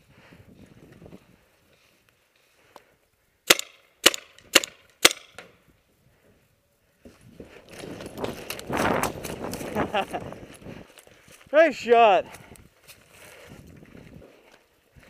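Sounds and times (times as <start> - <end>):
paintball marker shots: 3.5 - 5.5
footsteps crunching dry leaves: 7.2 - 15.0.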